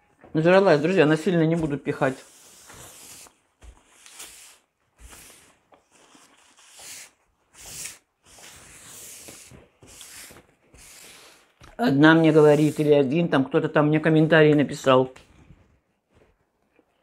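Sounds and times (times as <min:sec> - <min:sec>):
paper napkin wiping plastic tablecloth: 0:04.0 - 0:13.0.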